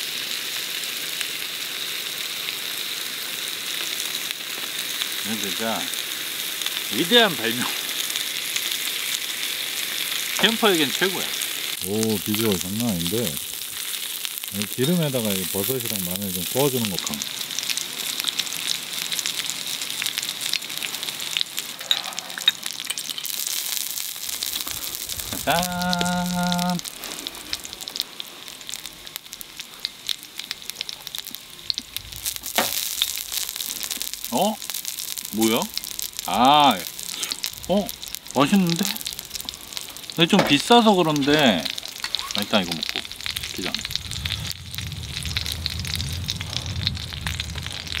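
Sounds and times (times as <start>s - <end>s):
meat sizzling as it fries: 0.0s - 48.0s
faint crackling pops: 11.2s - 48.0s.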